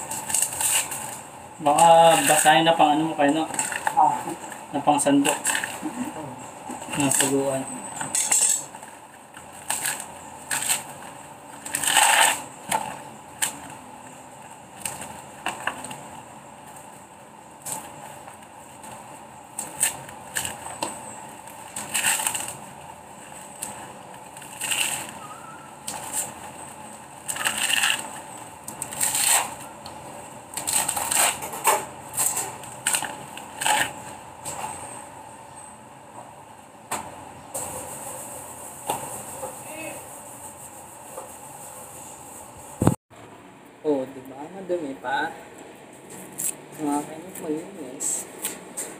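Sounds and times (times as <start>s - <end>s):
coconut husk ripping: 0.0s - 6.1s, 6.8s - 16.2s, 17.6s - 29.8s, 30.4s - 34.2s.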